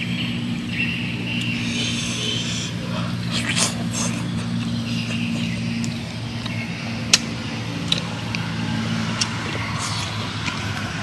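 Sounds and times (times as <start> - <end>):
low motor-like hum: 0.0 - 11.0
mouth clicks and smacks chewing: 9.2 - 10.9.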